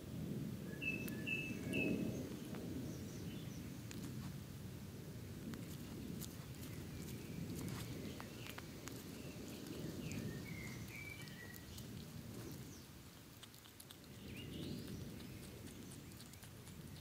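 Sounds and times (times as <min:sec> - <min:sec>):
faint bird chirps: 0:00.6 - 0:03.7, 0:06.6 - 0:13.0, 0:14.1 - 0:17.0
low uneven rumble: 0:01.8 - 0:17.0
hedgehog chewing and smacking: 0:03.9 - 0:04.4, 0:05.4 - 0:17.0.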